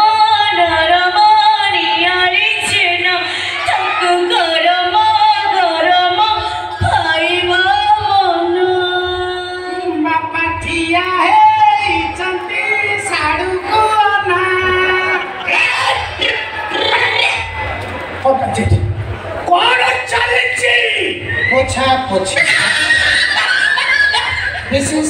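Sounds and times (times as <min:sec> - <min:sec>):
woman singing: 0:00.0 - 0:15.4.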